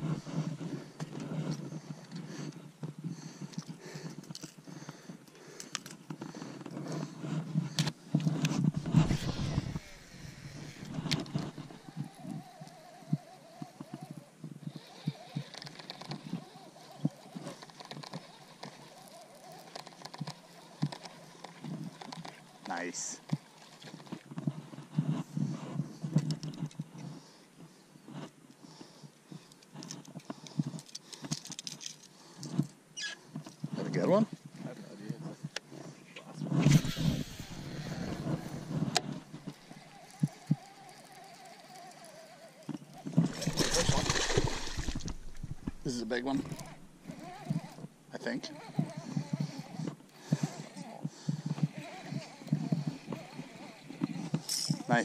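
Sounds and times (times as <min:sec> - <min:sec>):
fishing reel cranking: 0:08.2 - 0:24.2, 0:36.6 - 0:55.0
small reel clicks: 0:09.3 - 0:24.2, 0:36.8 - 0:43.4.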